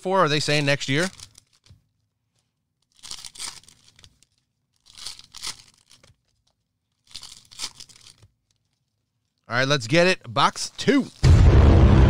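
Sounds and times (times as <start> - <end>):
card packaging tearing and crinkling: 0.4 - 1.7, 2.9 - 6.4, 7.0 - 8.2, 10.8 - 11.3.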